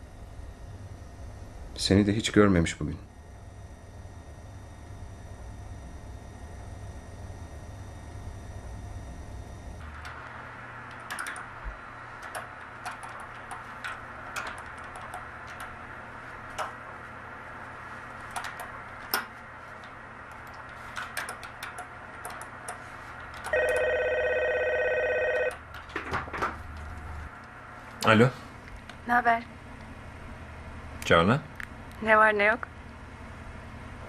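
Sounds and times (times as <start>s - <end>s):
desk telephone ringing: 22.8s - 25.9s.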